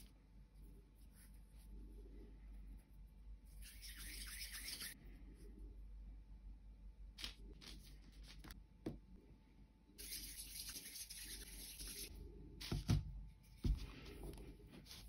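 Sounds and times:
hissy rubbing on paper: 10.0 - 12.1.

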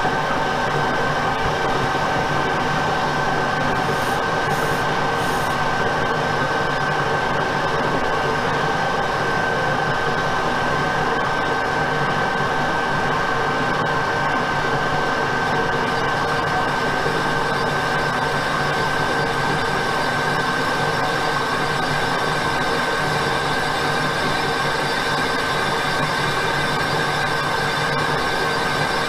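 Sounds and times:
lathe machining noise: 1.5 - 6.4.

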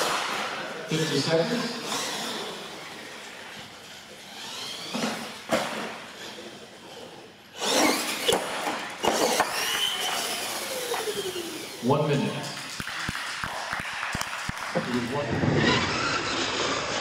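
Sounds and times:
toy truck motors whining: 0.8 - 12.0, 15.4 - 17.0
tires scrubbing on concrete: 14.8 - 17.0.

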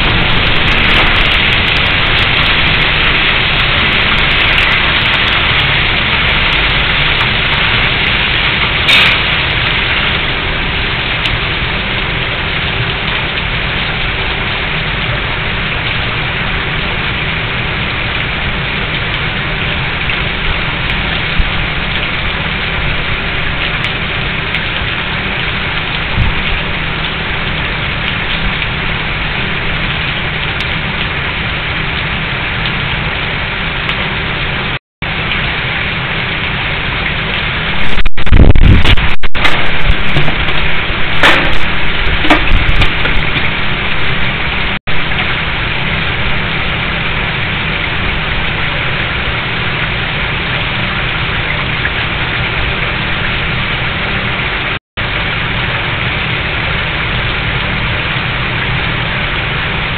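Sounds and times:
dense rushing noise: 0.0 - 12.9, 37.4 - 51.3
sharp crack: 8.8 - 9.6.

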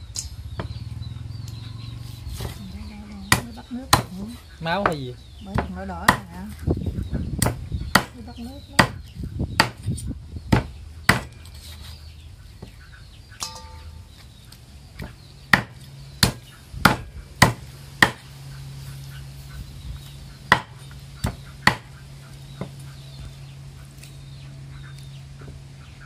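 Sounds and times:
cleaver chopping bone on wood: 3.3 - 4.2, 4.8 - 6.5, 7.4 - 8.2, 8.8 - 9.9, 10.5 - 11.4, 15.0 - 18.2, 20.5 - 22.0.

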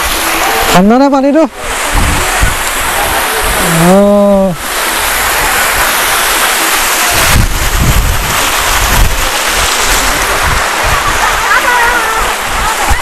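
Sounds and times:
waterfall rushing: 0.0 - 13.0
feet splashing in water: 1.5 - 13.0
wind buffeting microphone: 1.7 - 3.8, 5.1 - 13.0.

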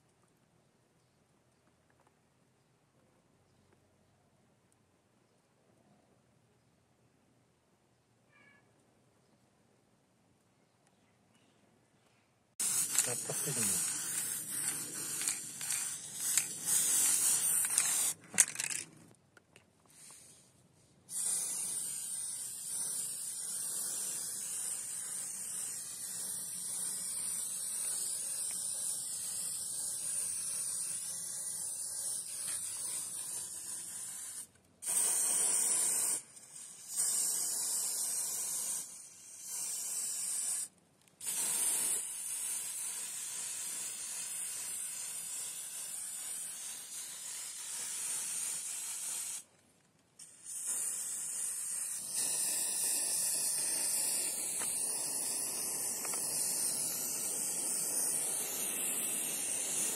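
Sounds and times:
spray-paint can hissing: 12.6 - 18.8, 19.9 - 20.5, 21.1 - 49.5, 50.2 - 59.9.

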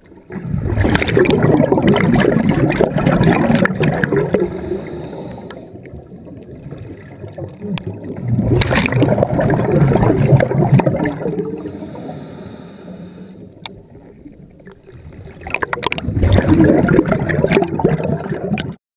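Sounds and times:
exhaled bubbles rushing: 0.0 - 12.2, 13.8 - 18.8
regulator inhale hissing: 4.2 - 5.8, 11.5 - 13.6.

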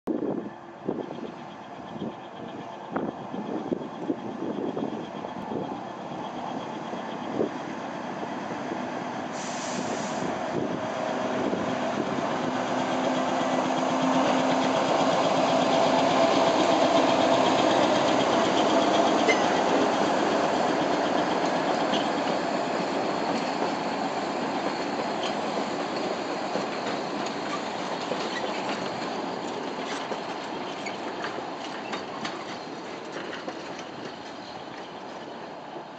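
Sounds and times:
train passing by: 0.1 - 35.9.

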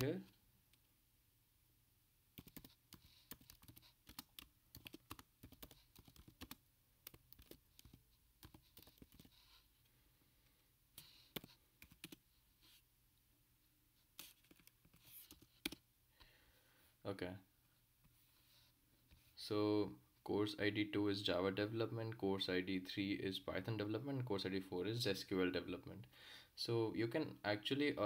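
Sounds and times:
computer keyboard typing: 2.4 - 9.4, 11.3 - 12.2, 14.2 - 15.8.

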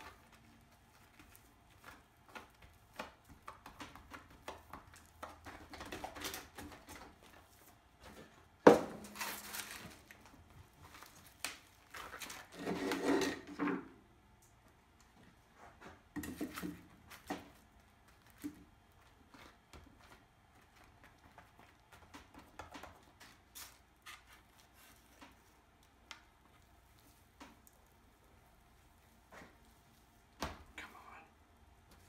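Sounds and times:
rubbing and scraping cement: 12.0 - 13.5.

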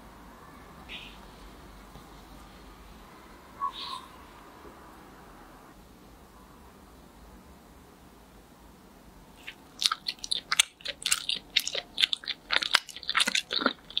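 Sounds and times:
sticky food wet clicks and crackles: 9.4 - 14.0.

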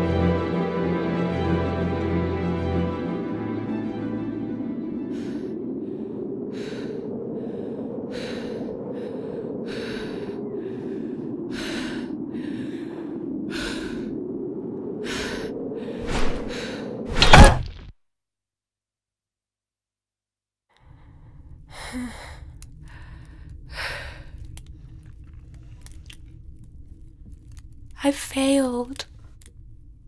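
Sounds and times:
low wind: 0.0 - 17.9, 20.8 - 30.0
loud swing and hit: 17.1 - 17.8.

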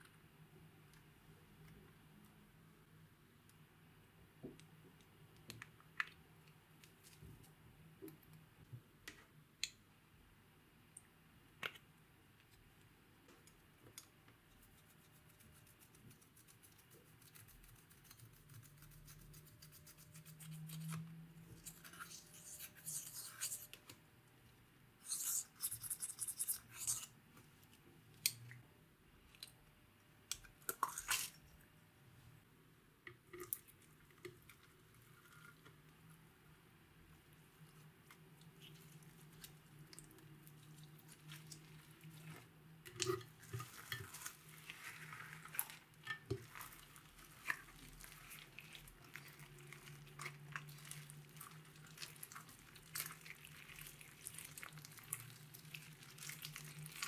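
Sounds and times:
brush scratching eyeshadow: 14.6 - 21.0, 21.6 - 23.8, 25.0 - 27.1.

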